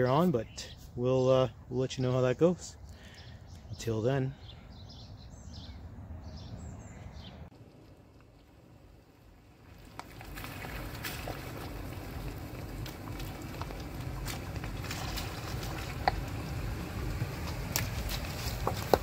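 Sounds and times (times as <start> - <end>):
tyres crunching gravel: 7.5 - 19.0
tyres sloshing through mud: 9.6 - 19.0
truck engine running: 11.5 - 19.0
stones clicking: 17.4 - 19.0.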